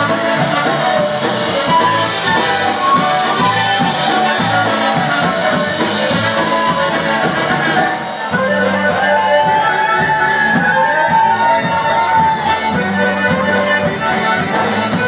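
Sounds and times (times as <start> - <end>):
electric bass guitar: 0.0 - 15.0
polka band playing: 0.0 - 15.0
trumpets: 0.0 - 15.0.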